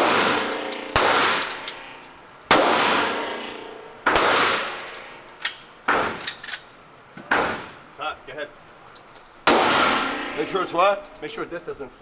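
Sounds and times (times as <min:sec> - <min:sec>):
echoing indoor gunshots: 0:00.0 - 0:01.8, 0:02.5 - 0:06.3, 0:07.3 - 0:07.9, 0:09.4 - 0:10.5.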